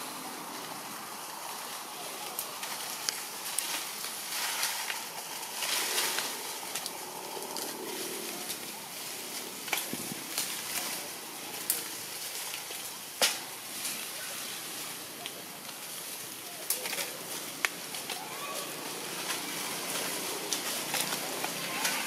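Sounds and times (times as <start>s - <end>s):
dry leaves crackling and rustling: 0.0s - 22.0s
forest background hiss: 0.0s - 22.0s.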